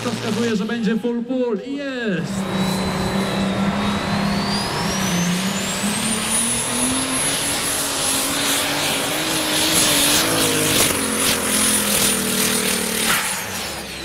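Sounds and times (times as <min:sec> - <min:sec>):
tractor engine running hard: 0:00.0 - 0:00.6, 0:02.2 - 0:14.0
thin high whine: 0:02.2 - 0:14.0.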